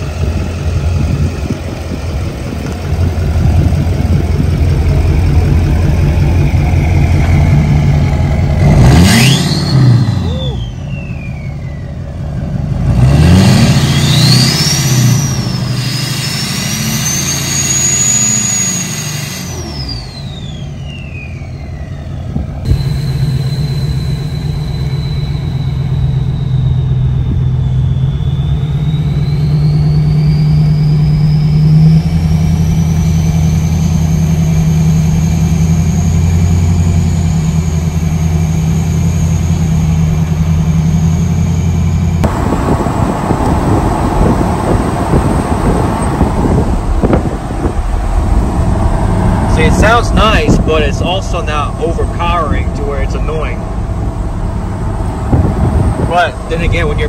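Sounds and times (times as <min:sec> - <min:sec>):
diesel engine accelerating: 0:00.0 - 0:57.0
turbo whistle: 0:08.9 - 0:12.0, 0:13.6 - 0:42.1.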